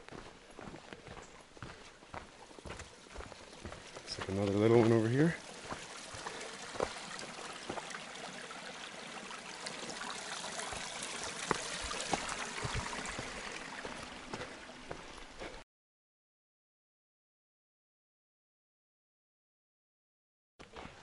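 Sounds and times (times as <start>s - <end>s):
footsteps on gravel: 0.0s - 7.9s, 10.7s - 15.6s, 20.6s - 21.0s
stream trickling over rocks: 0.0s - 15.6s.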